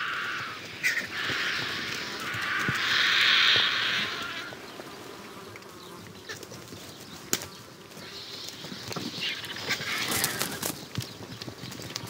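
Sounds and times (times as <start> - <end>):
wings flapping: 6.3 - 12.0
feathers rustling: 8.6 - 11.1.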